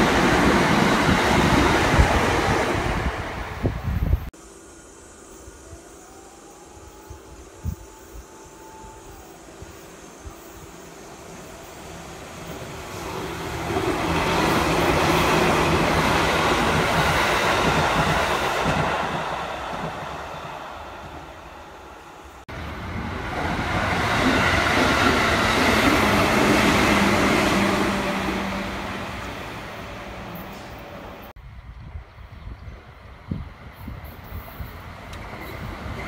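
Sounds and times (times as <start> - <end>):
train low hum: 0.0 - 36.0
train wheels rumbling past: 9.6 - 31.3.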